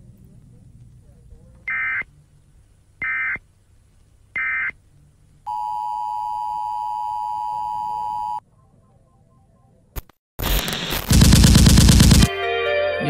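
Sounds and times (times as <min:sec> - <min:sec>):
faint hum: 0:00.0 - 0:12.3
data burst tone: 0:10.4 - 0:12.3.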